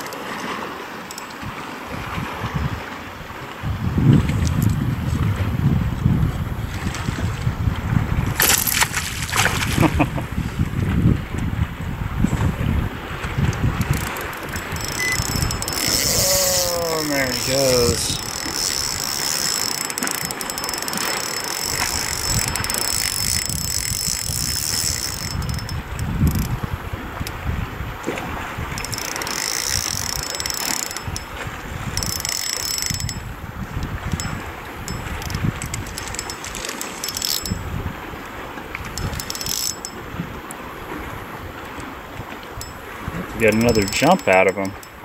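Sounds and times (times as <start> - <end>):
water lapping at kayak: 0.0 - 45.0
fishing reel ratcheting clicks: 1.1 - 1.4, 8.4 - 9.4, 13.6 - 27.4, 28.7 - 37.8, 38.8 - 40.0, 42.6 - 42.8, 43.4 - 45.0
wind on microphone: 1.4 - 45.0.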